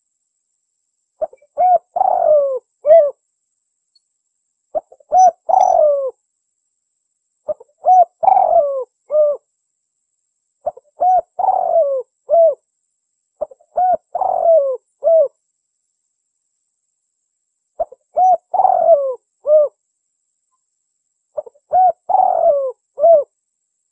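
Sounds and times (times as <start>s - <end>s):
dove cooing: 1.2s - 3.2s, 4.8s - 6.2s, 7.5s - 9.5s, 10.6s - 12.6s, 13.4s - 15.4s, 17.8s - 19.8s, 21.4s - 23.3s.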